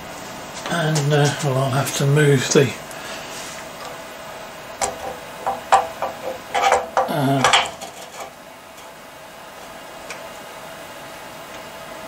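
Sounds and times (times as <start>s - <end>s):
hard objects knocking and clinking: 4.8s - 8.4s.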